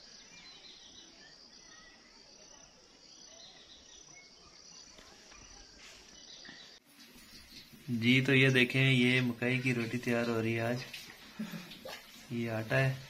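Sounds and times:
faint bird chirps: 0.0 - 8.0.

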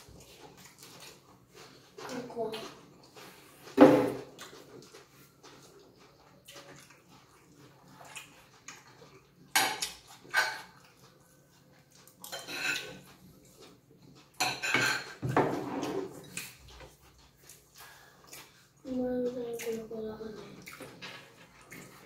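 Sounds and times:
forks scraping on plates: 9.5 - 10.9, 12.2 - 17.0
forks clinking on plates: 12.2 - 13.0, 14.3 - 15.6.

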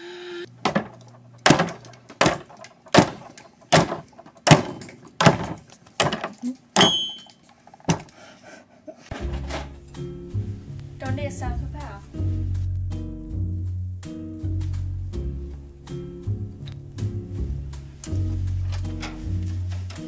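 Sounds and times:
sharp knocks: 0.6 - 7.2
low music notes: 9.1 - 20.0.

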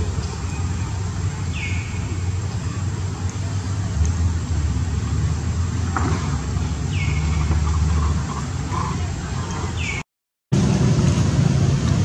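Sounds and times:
low outdoor rumble: 0.0 - 10.0, 10.6 - 12.0.

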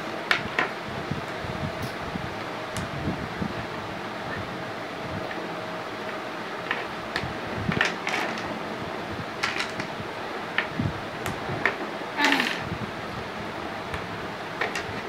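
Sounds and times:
steady background hiss: 0.0 - 15.0
plastic blocks clicking together: 9.4 - 9.9, 14.6 - 15.0.

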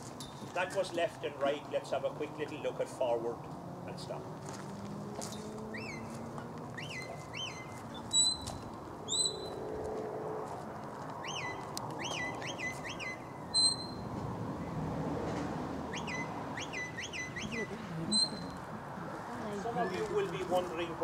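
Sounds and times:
short rising whistle chirps: 6.8 - 8.5, 11.2 - 14.1.

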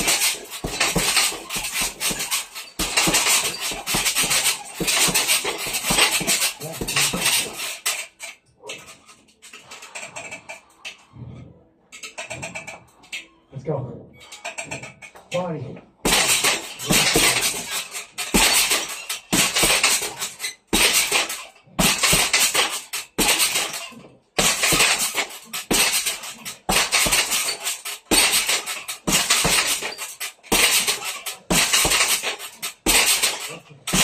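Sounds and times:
boxing gloves striking heavy bag: 0.0 - 7.9, 16.0 - 34.0
chains and metal stand rattling: 0.0 - 11.2, 11.9 - 13.4, 14.1 - 34.0.

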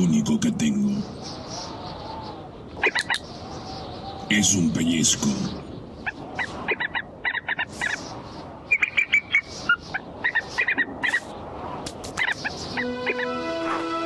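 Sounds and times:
eaglet chick squawking: 6.0 - 8.1, 8.7 - 11.3.

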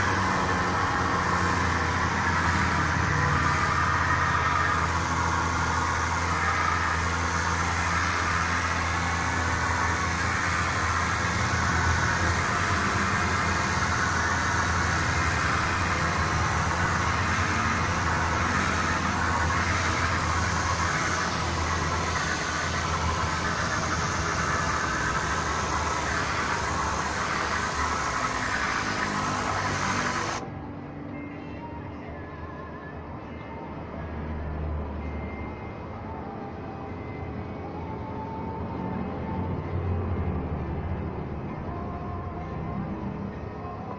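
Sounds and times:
compressed air hissing: 0.0 - 30.4.

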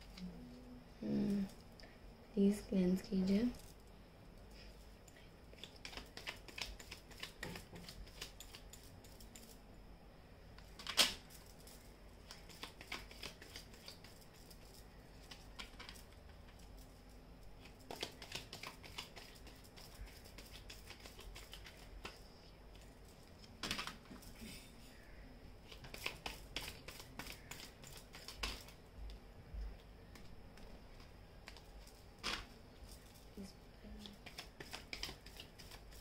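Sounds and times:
cards clicking and rustling: 5.6 - 9.6, 10.6 - 16.9, 17.6 - 22.2, 23.4 - 24.4, 25.7 - 28.8, 30.1 - 33.2, 34.0 - 36.0.

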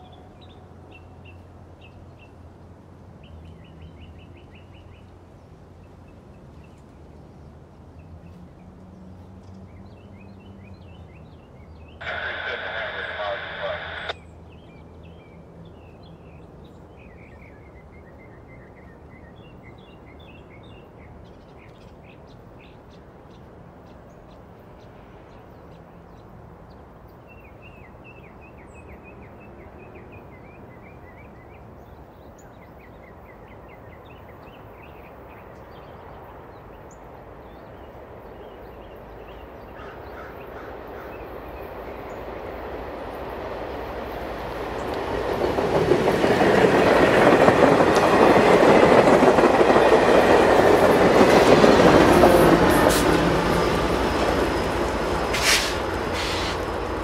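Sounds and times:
birds chirping: 10.8 - 14.3, 44.0 - 57.0
passenger train rumbling: 12.0 - 14.2, 36.0 - 57.0.

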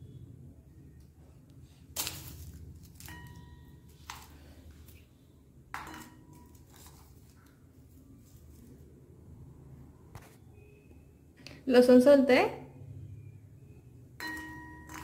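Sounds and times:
metal plate clinking: 5.8 - 6.7, 14.2 - 15.0.

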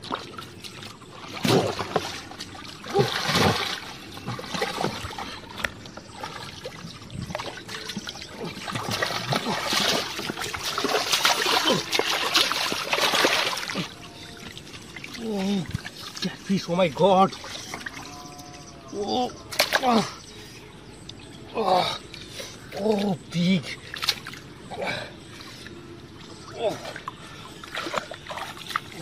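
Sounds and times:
water splashing in a ditch: 0.0 - 18.2, 19.5 - 20.2, 23.8 - 25.1, 26.4 - 29.0.

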